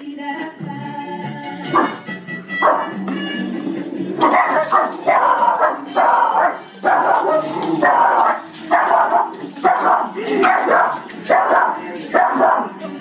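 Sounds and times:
dogs barking: 0:01.7 - 0:02.0, 0:02.6 - 0:03.0, 0:04.2 - 0:13.0.

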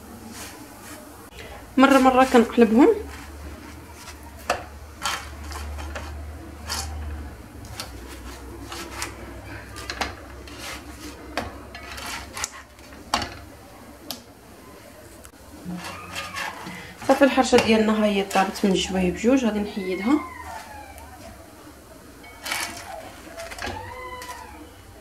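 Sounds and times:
spatula scraping a frying pan: 0:00.2 - 0:01.1, 0:01.8 - 0:13.5, 0:15.6 - 0:21.4, 0:22.2 - 0:24.9.

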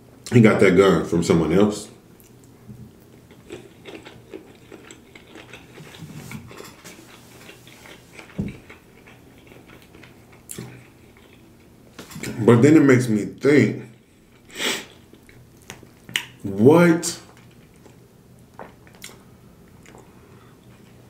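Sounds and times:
person chewing: 0:02.2 - 0:12.4, 0:13.9 - 0:16.4, 0:17.3 - 0:21.0.

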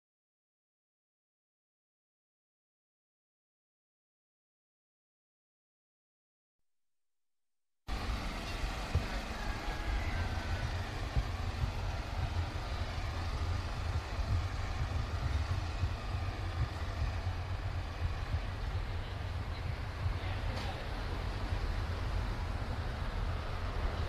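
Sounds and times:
faint street traffic: 0:07.9 - 0:24.0
wind rumble on microphone: 0:07.9 - 0:24.0.

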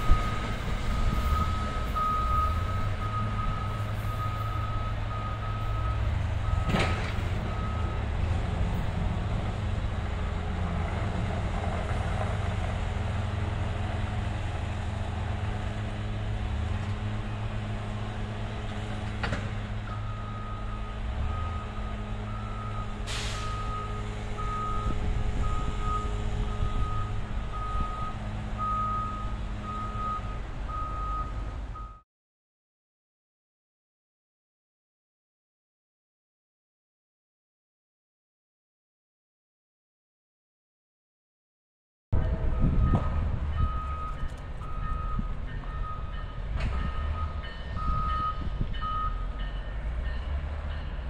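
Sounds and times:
backup alarm beeping: 0:43.6 - 0:49.3.

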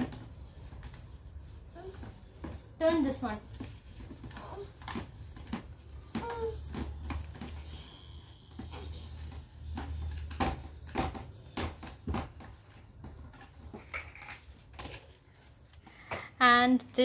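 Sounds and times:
plastic parts knocking and clicking: 0:08.5 - 0:15.1.

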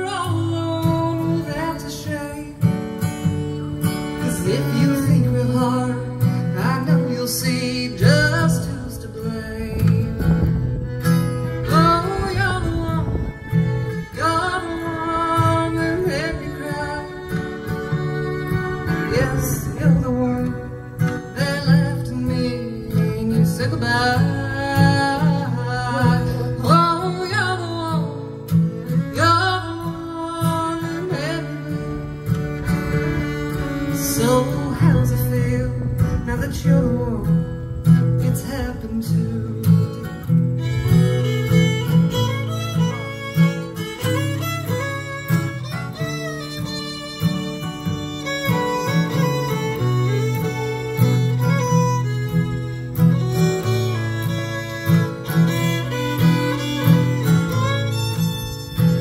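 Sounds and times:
fiddle playing: 0:00.0 - 0:35.5, 0:40.0 - 0:59.0
strummed acoustic guitar: 0:00.0 - 0:59.0
woman singing: 0:14.2 - 0:17.3, 0:21.3 - 0:28.1, 0:29.1 - 0:31.7.

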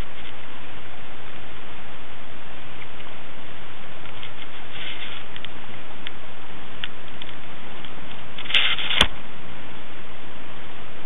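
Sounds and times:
steady hiss: 0:00.0 - 0:11.0
short rustle: 0:04.0 - 0:05.8, 0:07.1 - 0:09.2.

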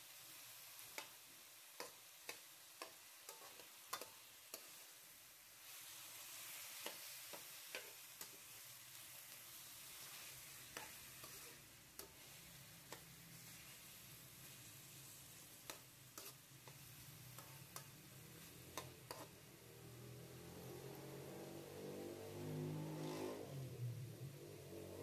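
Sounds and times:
chicken frying in wok: 0:00.0 - 0:25.0
metal spoon scraping wok: 0:01.8 - 0:04.9, 0:05.7 - 0:19.5.

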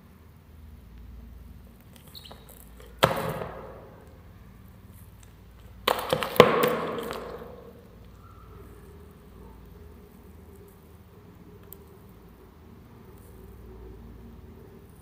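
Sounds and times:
sharp knocks: 0:02.8 - 0:04.0, 0:05.8 - 0:07.8.

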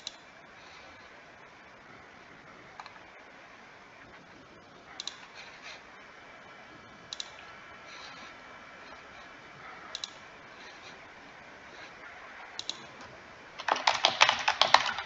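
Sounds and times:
faint steady hiss: 0:00.0 - 0:15.0
computer mouse clicking: 0:02.7 - 0:03.0, 0:05.0 - 0:05.3, 0:07.1 - 0:07.5, 0:09.9 - 0:10.2, 0:12.5 - 0:15.0.

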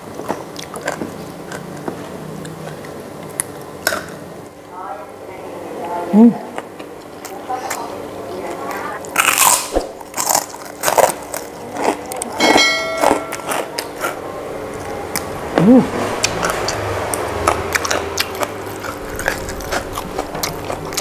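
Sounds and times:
chewing and mouth smacks: 0:00.0 - 0:04.2, 0:16.2 - 0:21.0.

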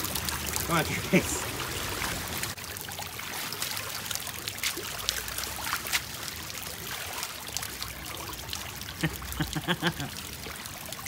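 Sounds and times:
paws splashing through water: 0:00.0 - 0:07.9
trickling water hiss: 0:00.0 - 0:11.0.

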